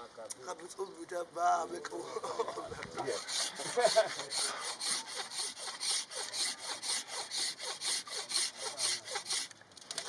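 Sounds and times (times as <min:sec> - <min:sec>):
rhythmic rasping strokes: 0:03.0 - 0:10.0.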